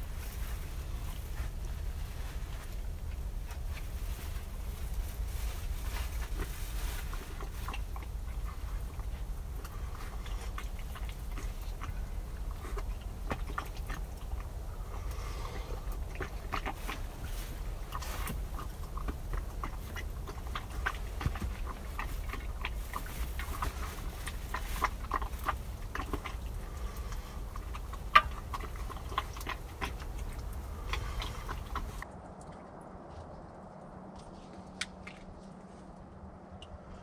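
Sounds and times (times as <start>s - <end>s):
campfire crackling: 0.0s - 32.6s
chewing: 0.0s - 35.6s
low steady rumble: 0.0s - 37.0s.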